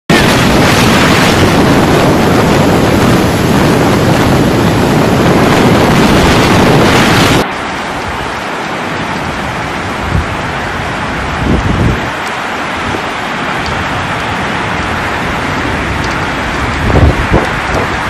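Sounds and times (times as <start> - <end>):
heavy rain: 0.1 - 18.0
wind blasting across microphone: 0.1 - 18.0.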